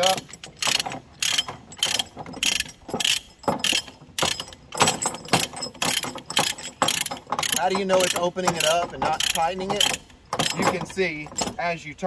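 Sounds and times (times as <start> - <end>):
ratchet pawl clicking: 5.9 - 10.7.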